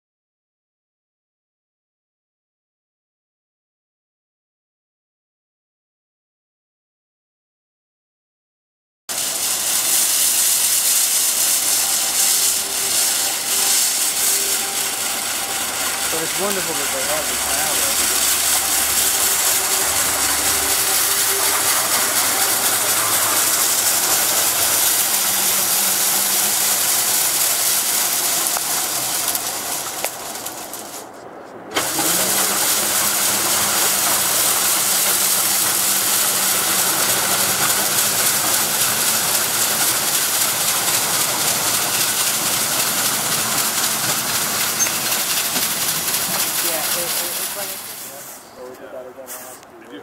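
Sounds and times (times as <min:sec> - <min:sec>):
low motor hum: 0:09.1 - 0:48.5
brooms sweeping snow hissing: 0:09.1 - 0:49.6.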